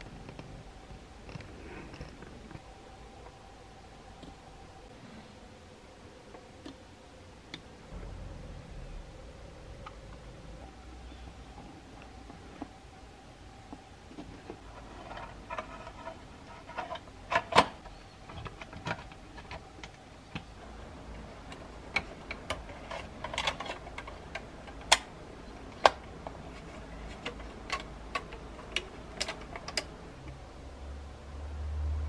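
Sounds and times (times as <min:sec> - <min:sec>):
low hum: 0:00.0 - 0:32.0
plastic parts clicking and tapping: 0:13.7 - 0:30.4.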